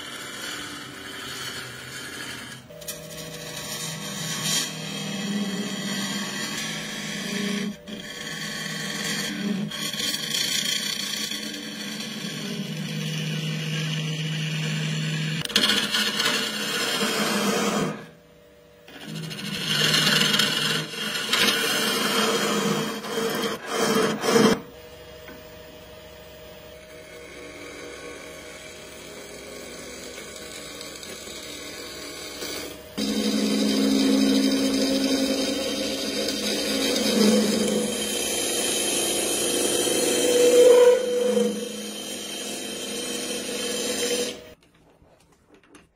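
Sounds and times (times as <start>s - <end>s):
gouge rasping wood shavings: 0.0s - 13.7s, 19.0s - 24.6s, 27.2s - 44.5s
lathe motor hum: 0.0s - 18.1s, 18.8s - 44.6s.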